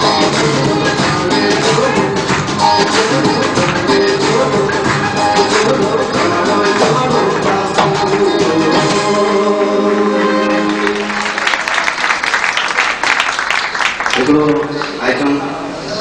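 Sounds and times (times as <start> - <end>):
man singing into a microphone: 0.0 - 11.0
audience applause: 9.5 - 15.2.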